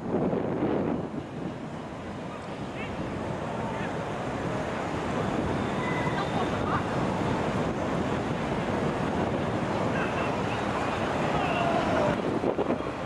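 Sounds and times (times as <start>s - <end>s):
wind buffeting microphone: 0.0s - 13.0s
faint short high squeaks: 5.6s - 6.5s.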